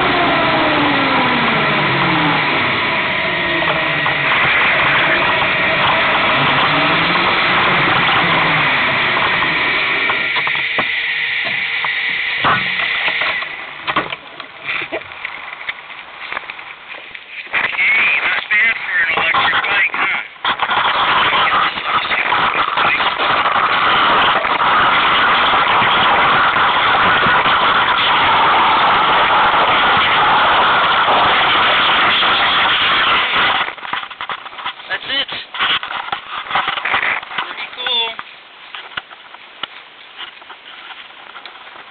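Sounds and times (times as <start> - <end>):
electric motor whine: 0.0 - 14.5, 22.2 - 33.7
wind rushing over microphone: 0.0 - 37.8.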